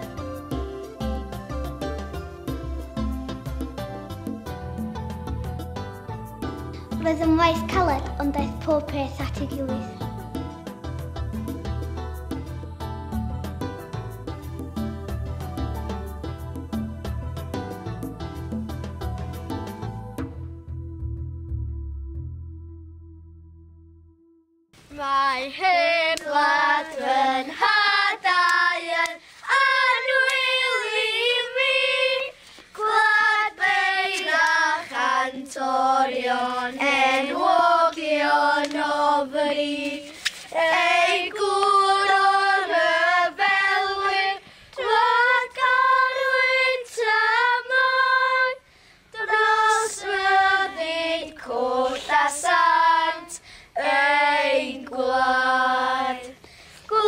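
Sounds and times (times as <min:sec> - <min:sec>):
children singing in unison: 0:25.6 - 0:48.6, 0:49.2 - 0:57.0.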